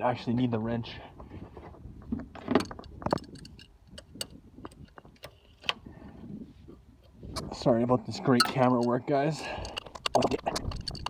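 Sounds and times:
wrench clinking on metal nut: 0:08.4 - 0:11.0.

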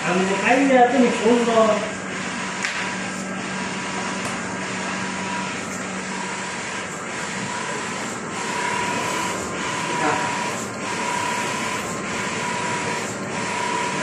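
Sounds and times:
inkjet printer whirring: 0:00.0 - 0:14.0.

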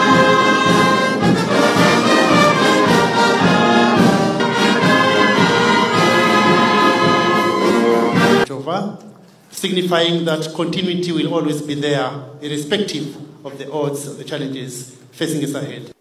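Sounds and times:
brass band playing: 0:00.0 - 0:08.5
trombones and trumpets: 0:00.0 - 0:08.5.

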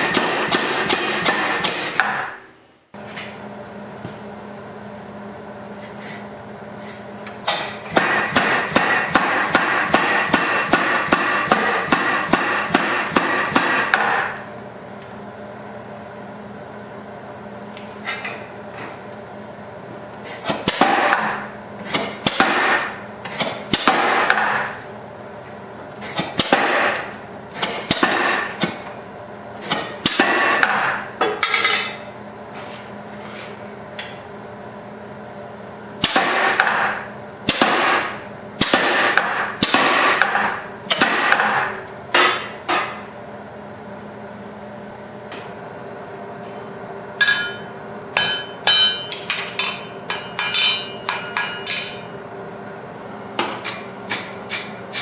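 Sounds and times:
power hammer striking steel: 0:00.0 - 0:02.5, 0:07.5 - 0:14.4, 0:20.5 - 0:24.8, 0:26.1 - 0:28.8, 0:29.6 - 0:31.1, 0:36.0 - 0:43.0, 0:47.2 - 0:52.2, 0:53.6 - 0:55.0
steady low hum: 0:00.0 - 0:55.0.

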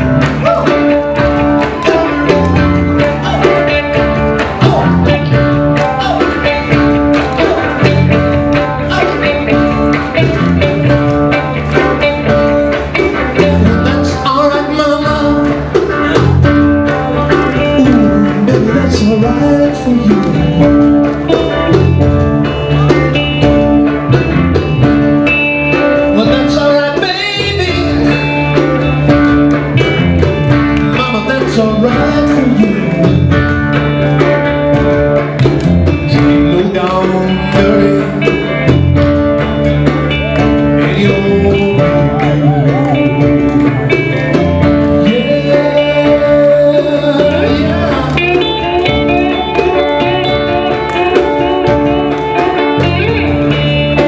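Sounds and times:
live band with electric guitars: 0:00.0 - 0:54.0
man singing: 0:01.8 - 0:23.3, 0:25.9 - 0:28.5, 0:30.6 - 0:34.4, 0:35.8 - 0:39.0, 0:40.1 - 0:49.4.

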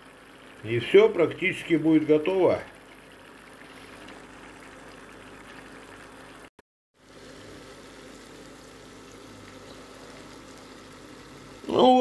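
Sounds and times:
food sizzling in oil: 0:02.7 - 0:12.0.

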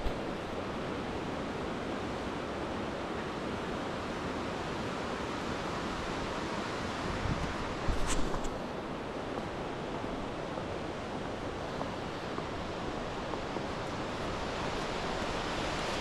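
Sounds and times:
water rushing: 0:08.6 - 0:16.0.

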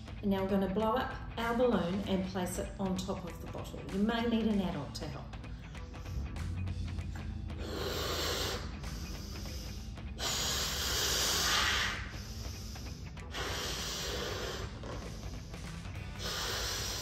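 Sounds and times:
person blowing up balloon: 0:07.6 - 0:17.0.

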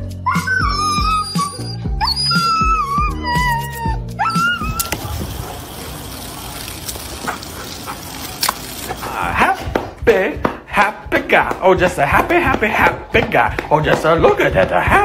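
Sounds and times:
water jet spraying into a pool: 0:04.8 - 0:08.9.

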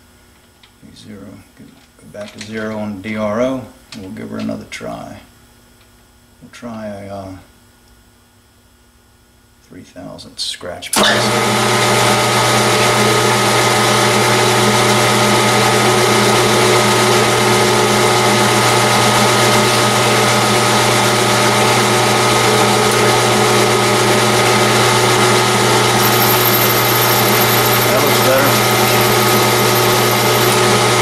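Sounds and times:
metal lathe humming and whining: 0:11.0 - 0:31.0.

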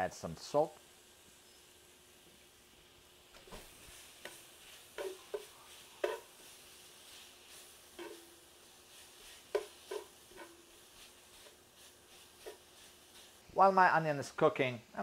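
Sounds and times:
onions sizzling: 0:00.0 - 0:15.0
metal tongs scraping pan: 0:04.2 - 0:13.3.

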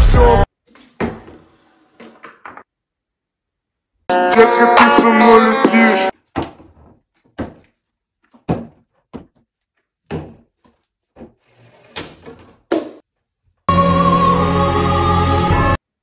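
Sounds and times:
plastic bottles knocking on wood: 0:06.2 - 0:11.4.

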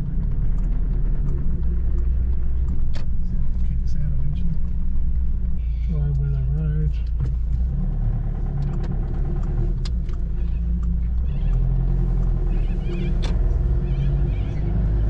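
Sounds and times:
sharp clicks: 0:00.0 - 0:05.1, 0:08.4 - 0:14.7
car engine and road drone: 0:00.0 - 0:15.0.

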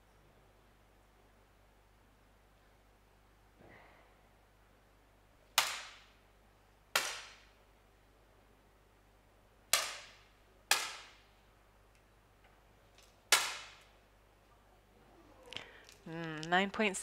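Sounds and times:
air pistol shots: 0:13.3 - 0:13.9.

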